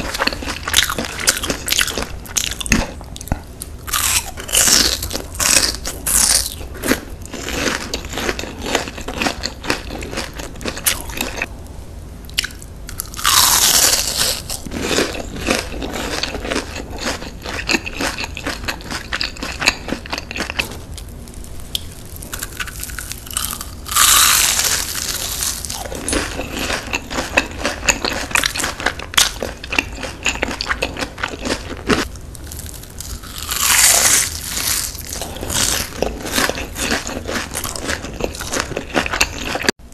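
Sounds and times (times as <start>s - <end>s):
crunching bites: 0.0s - 11.5s, 12.3s - 21.1s, 21.7s - 39.7s
crisp crackling chewing: 12.4s - 39.8s.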